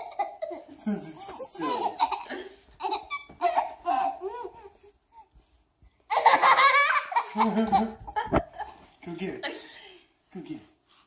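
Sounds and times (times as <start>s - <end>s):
baby laughing: 0.0s - 5.3s, 6.1s - 8.4s.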